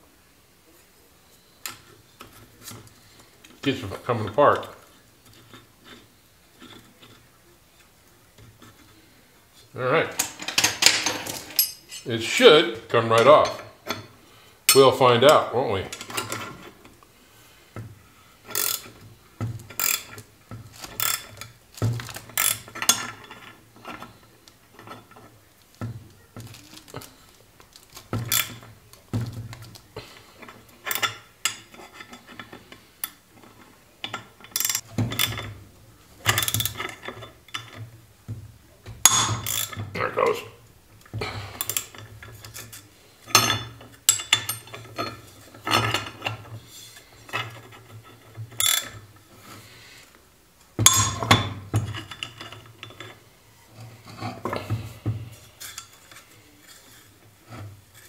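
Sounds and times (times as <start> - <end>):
ratchet wrench clicking: 18.5 - 18.8.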